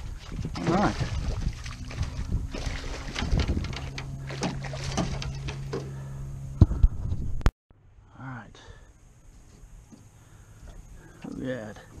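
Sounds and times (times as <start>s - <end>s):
fish thrashing and splashing: 0.0s - 5.7s
low hum: 0.0s - 12.0s
net knocking against hull: 0.5s - 5.9s.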